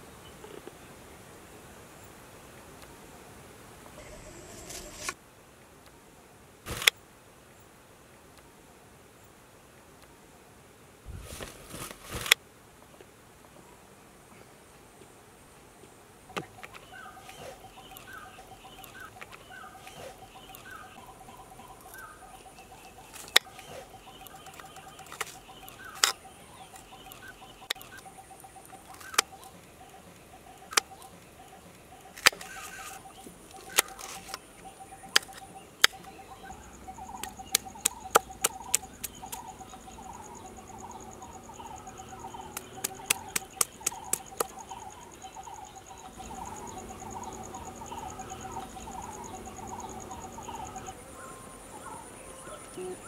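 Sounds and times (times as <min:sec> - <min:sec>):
insects and birds chirping: 0:00.0 - 0:53.0.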